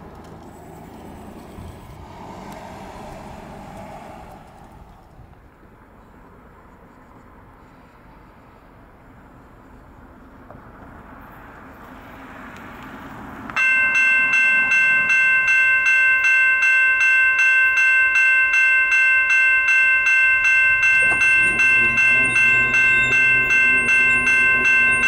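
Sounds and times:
crossing warning bell ringing: 0:13.6 - 0:25.0
low steady tone: 0:13.6 - 0:25.0.

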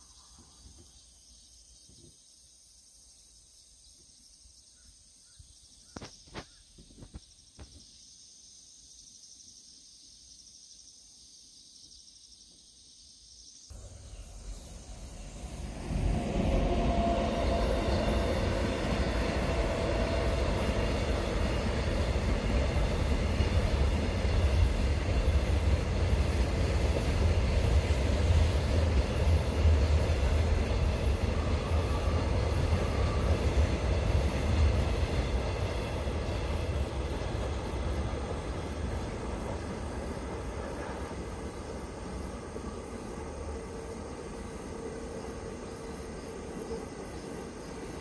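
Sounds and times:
freight train rumbling past: 0:13.7 - 0:48.0
brief steady whine: 0:13.8 - 0:21.8.

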